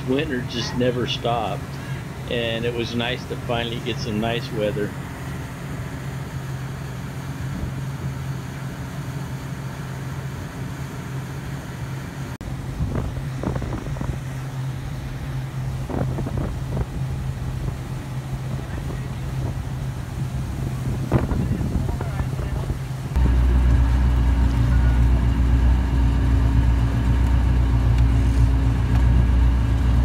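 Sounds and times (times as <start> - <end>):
motorboat engine droning: 0.0 - 30.0
water rushing past hull: 0.0 - 30.0
wind buffeting microphone: 7.0 - 8.5, 12.4 - 30.0.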